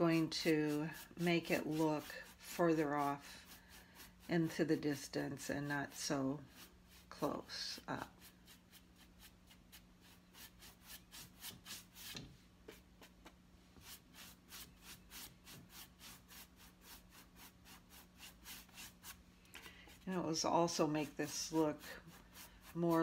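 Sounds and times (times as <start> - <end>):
rhythmic rubbing on canvas: 0.0 - 5.1, 19.9 - 23.0
low steady hum: 0.0 - 23.0.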